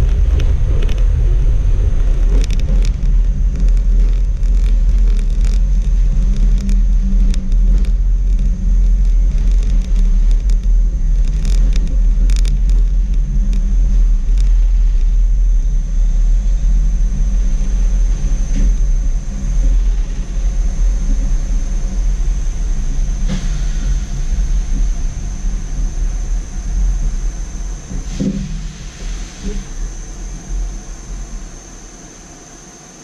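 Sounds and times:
tram wheels rumbling: 0.0 - 33.0
clicks and rattles: 2.1 - 14.6.

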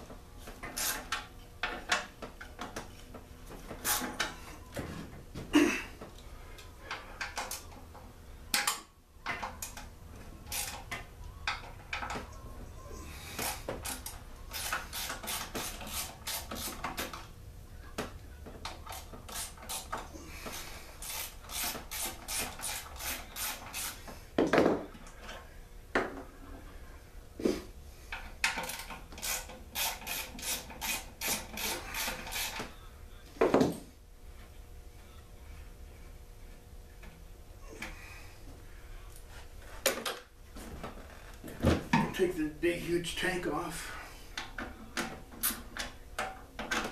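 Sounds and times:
parts knocking on wooden bench: 24.4 - 24.9.

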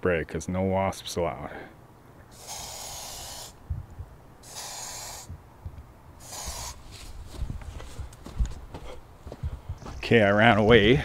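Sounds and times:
aerosol spray hissing: 2.4 - 3.6, 4.4 - 5.3, 6.2 - 6.8.

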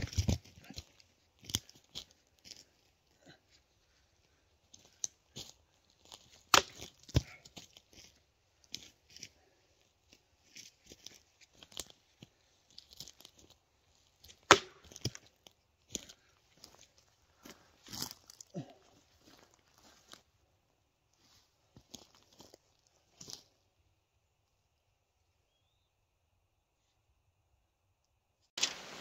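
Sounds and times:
machete striking wood: 6.5 - 7.2, 14.4 - 15.2.

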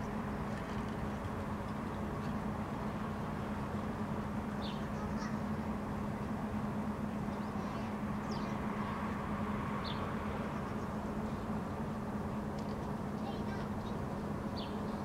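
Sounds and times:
distant city traffic hum: 0.0 - 15.0
small birds chirping: 4.5 - 5.6, 7.3 - 9.2, 13.2 - 15.0.

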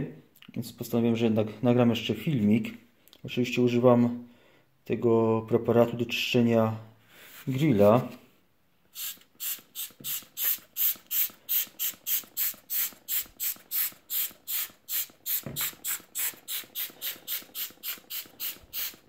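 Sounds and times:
spray bottle squirting: 8.9 - 19.0.

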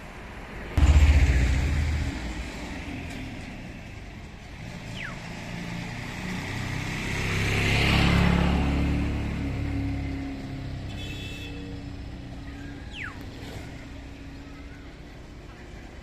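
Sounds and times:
motor vehicles passing: 0.8 - 10.9.

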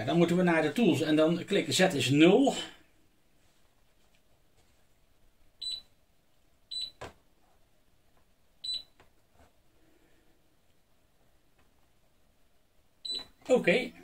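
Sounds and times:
touchscreen beeps: 13.0 - 13.3.

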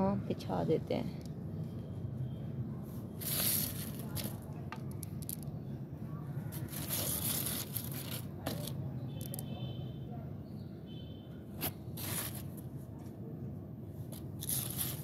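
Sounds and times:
hand scraping through soil: 3.2 - 4.4, 6.5 - 8.7, 11.6 - 12.6, 14.2 - 15.0
pebbles clicking: 3.2 - 5.5.

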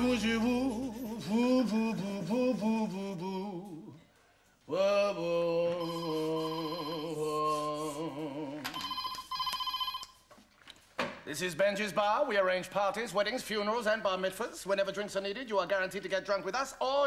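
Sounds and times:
singing with vibrato: 0.0 - 9.0
telephone ringing: 5.8 - 7.2, 8.7 - 10.3.

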